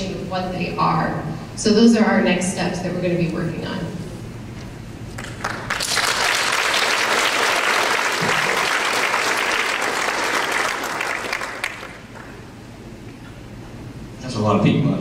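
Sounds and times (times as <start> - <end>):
audience applauding: 5.1 - 12.5.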